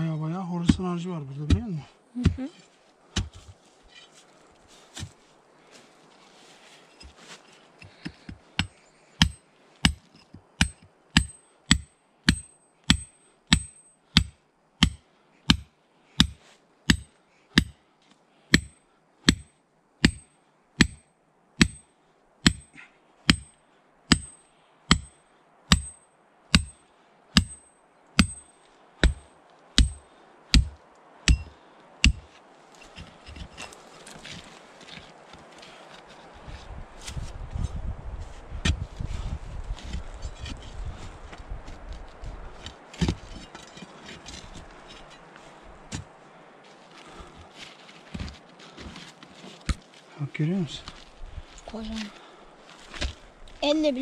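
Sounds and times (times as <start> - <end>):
metal tool striking mortar: 8.6 - 17.8, 18.6 - 26.8, 27.4 - 30.0, 30.6 - 32.3.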